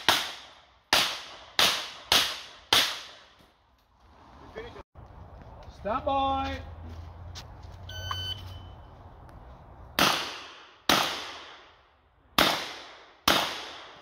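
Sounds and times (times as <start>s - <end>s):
shot timer beep: 7.9s - 8.8s.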